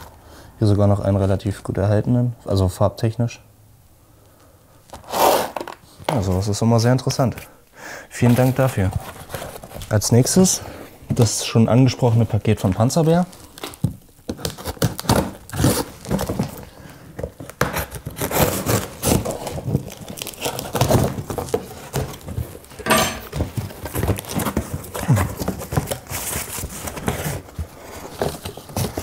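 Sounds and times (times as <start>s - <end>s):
cardboard scrapes and crackles: 8.2s - 10.6s, 14.3s - 22.8s, 23.4s - 29.0s
knife slitting packing tape: 17.6s - 19.5s.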